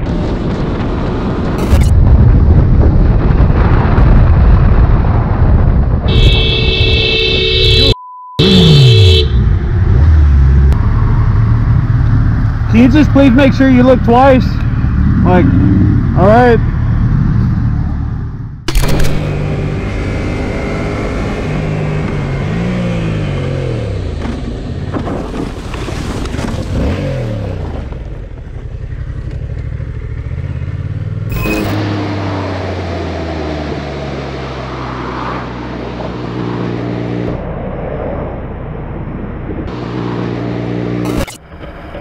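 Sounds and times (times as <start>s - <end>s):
motorcycle engine revving: 14.6s - 25.0s, 26.6s - 37.4s.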